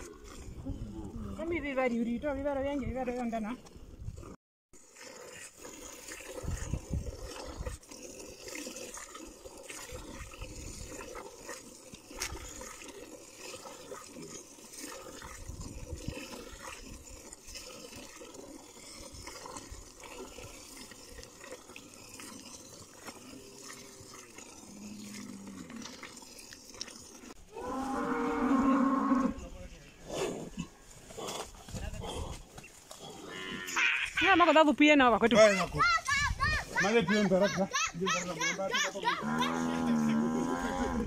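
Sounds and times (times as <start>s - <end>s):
milk squirting into container: 4.9s - 27.4s.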